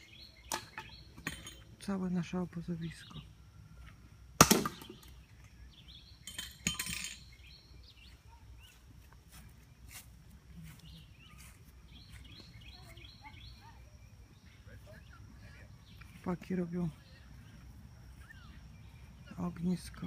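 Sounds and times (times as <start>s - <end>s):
clatter with clinks: 0.5s - 1.7s, 6.2s - 7.4s
small bird chirps: 4.8s - 10.0s, 10.6s - 20.0s.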